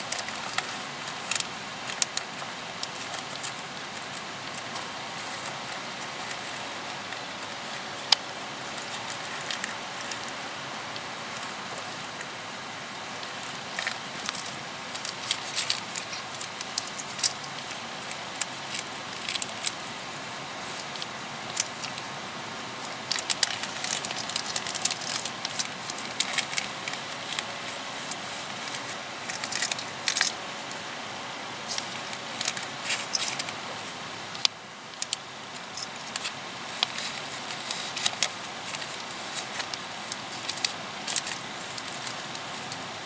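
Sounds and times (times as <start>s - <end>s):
sharp crackling clicks: 0.0s - 11.4s, 23.0s - 30.8s, 34.2s - 43.0s
outdoor hiss: 0.0s - 43.0s.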